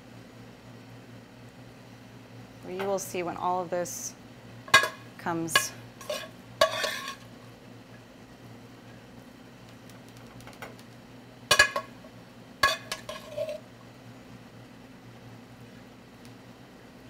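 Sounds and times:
metal spoon scraping frying pan: 0:04.8 - 0:07.3, 0:12.6 - 0:13.6.

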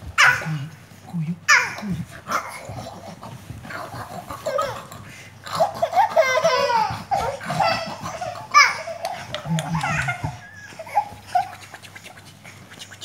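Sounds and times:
toddlers laughing and squealing: 0:03.8 - 0:11.9.

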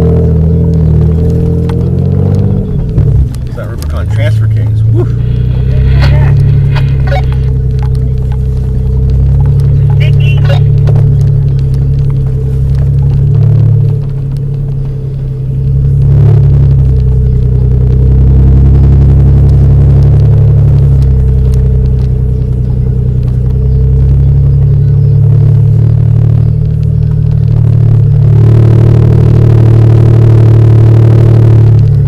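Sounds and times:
vehicle engine and road rumble: 0:00.0 - 0:32.0.

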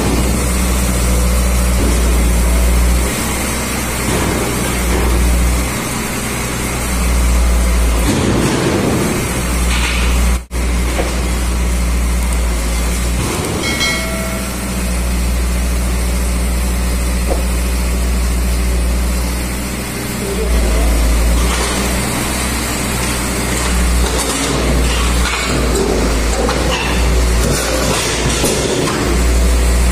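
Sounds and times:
diesel truck engine running: 0:00.0 - 0:29.9
short ringing tone: 0:13.6 - 0:14.7.

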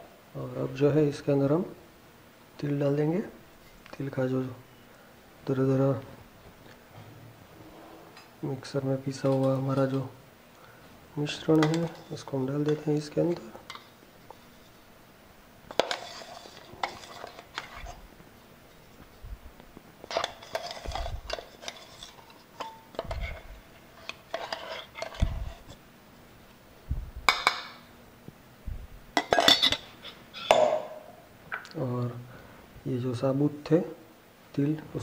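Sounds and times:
metal bowls and spoon clinking: 0:11.4 - 0:14.8, 0:15.7 - 0:18.0, 0:20.0 - 0:25.7, 0:29.1 - 0:31.2.

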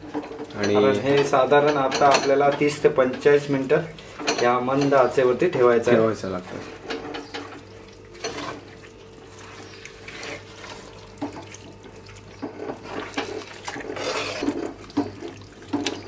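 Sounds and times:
spatula stirring wet curry: 0:12.2 - 0:16.0.

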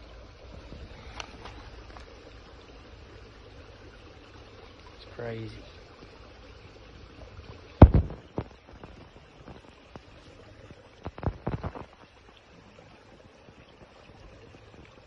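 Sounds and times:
creek water rushing: 0:00.0 - 0:15.0
handling knocks: 0:07.8 - 0:08.5.

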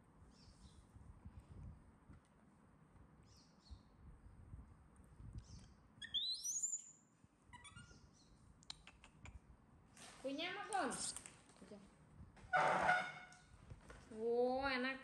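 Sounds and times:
baby macaque screaming: 0:07.6 - 0:08.0.

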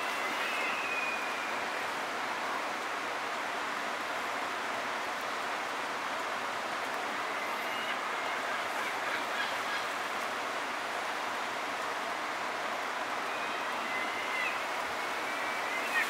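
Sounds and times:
creek water flowing: 0:00.0 - 0:16.0
faint bird calls: 0:13.2 - 0:16.0.

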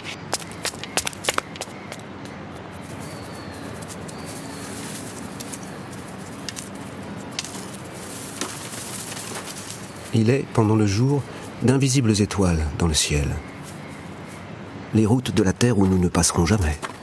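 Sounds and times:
footsteps on stone steps: 0:00.0 - 0:10.1, 0:16.8 - 0:17.0.

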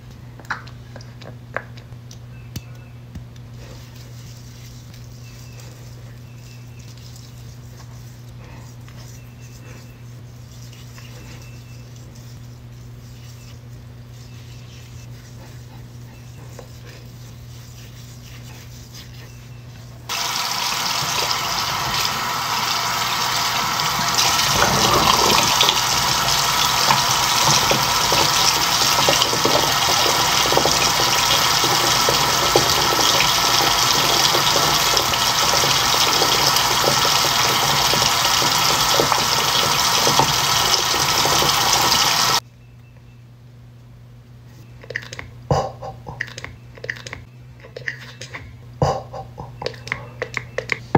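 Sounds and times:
tap running into basin: 0:20.1 - 0:42.4
water splashing: 0:20.2 - 0:42.4.

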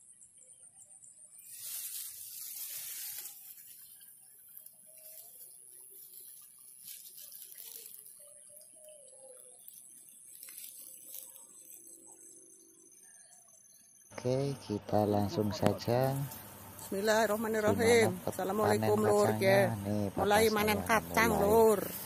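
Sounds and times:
high insect drone: 0:00.0 - 0:22.0
rustling noise: 0:01.4 - 0:08.3, 0:09.6 - 0:12.0.

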